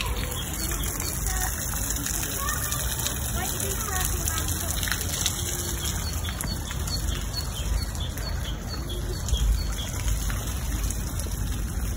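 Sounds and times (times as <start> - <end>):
water trickling: 0.0 - 11.9.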